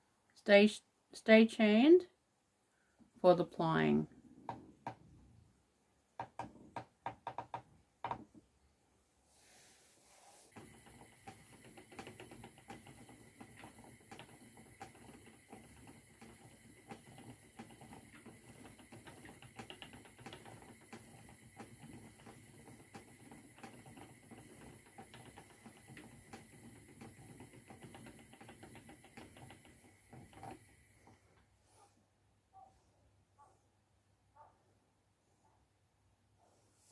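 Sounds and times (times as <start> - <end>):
spinning wheel clicking: 10.5 - 31.1.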